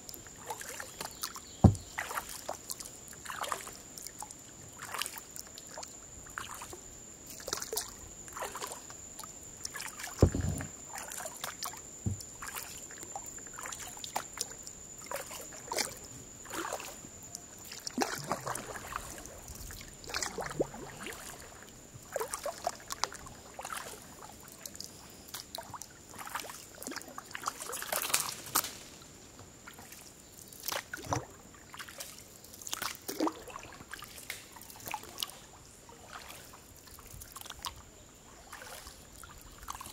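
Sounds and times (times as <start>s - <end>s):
paddle pulling through water: 0.0s - 28.9s, 29.5s - 39.9s
water dripping off paddle: 0.2s - 6.7s, 17.6s - 21.5s
water splashing: 0.4s - 4.2s, 9.6s - 24.0s, 25.5s - 28.6s, 30.6s - 37.8s, 38.4s - 39.9s
dull thump: 1.6s - 1.9s, 10.2s - 10.8s, 12.0s - 12.2s.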